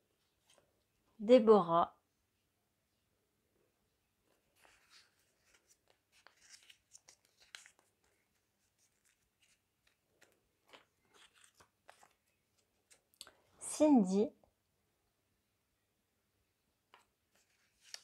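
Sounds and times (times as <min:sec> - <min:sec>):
paper rustling and crinkling: 0:04.3 - 0:13.2, 0:16.9 - 0:18.0.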